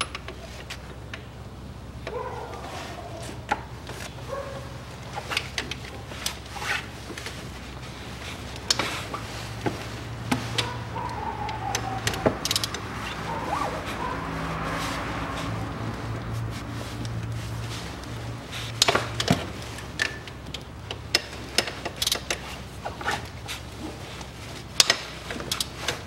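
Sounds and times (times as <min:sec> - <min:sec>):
hand tools clicking on metal: 0:10.4 - 0:14.1, 0:18.0 - 0:26.0.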